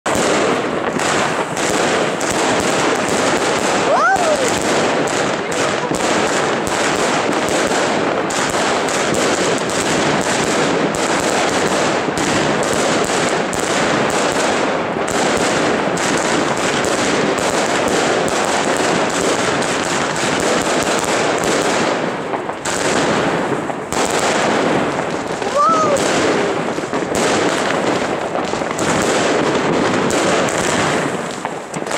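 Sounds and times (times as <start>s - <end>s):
firework cake firing: 0.0s - 31.9s.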